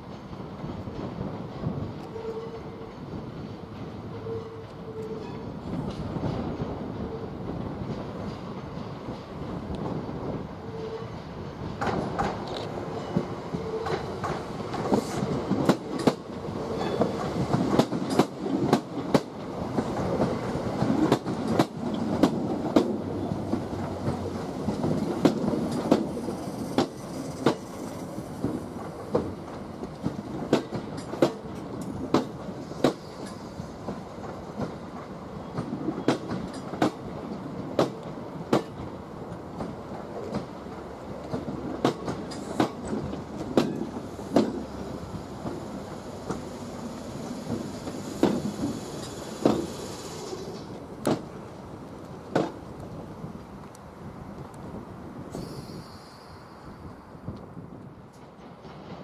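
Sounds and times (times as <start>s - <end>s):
train rumble: 0.0s - 59.0s
train wheels clacking over rails: 10.7s - 51.5s, 58.1s - 59.0s.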